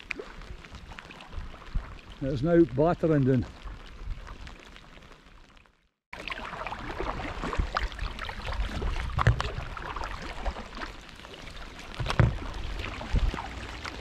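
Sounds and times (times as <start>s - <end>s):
paddle strokes splashing water: 6.2s - 14.0s.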